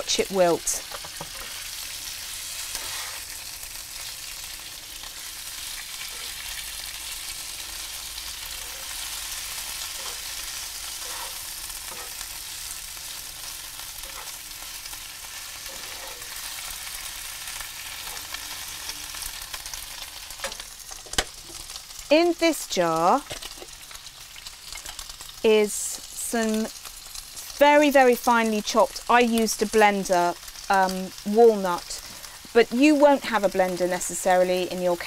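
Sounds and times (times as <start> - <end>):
spatula stirring leaves: 0.0 - 22.0
food sizzling in a frying pan: 0.0 - 35.0.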